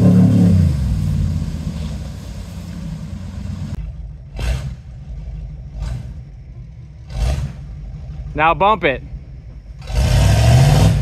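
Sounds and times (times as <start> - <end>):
water washing around truck: 0.0 - 8.4
pickup truck engine: 0.0 - 11.0.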